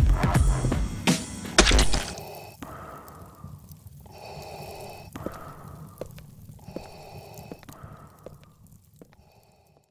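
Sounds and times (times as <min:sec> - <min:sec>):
breathing through a gas mask: 0:02.0 - 0:09.9.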